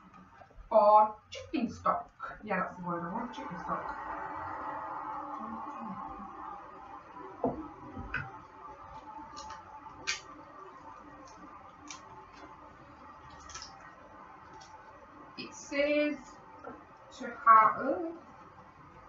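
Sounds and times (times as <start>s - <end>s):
faint background hum: 0.0s - 19.0s
garlic peel crackles: 8.3s - 15.0s.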